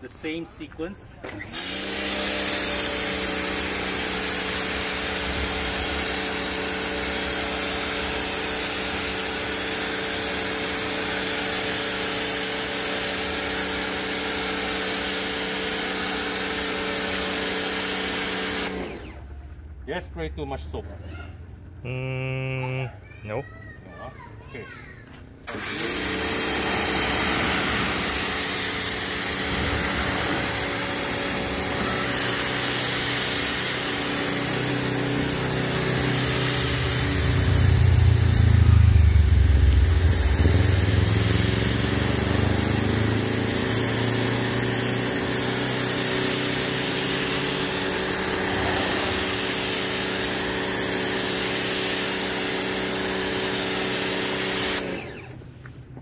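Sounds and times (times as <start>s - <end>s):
pressure washer motor hum: 0.2s - 20.0s, 25.0s - 56.0s
water jet hissing: 25.9s - 54.8s.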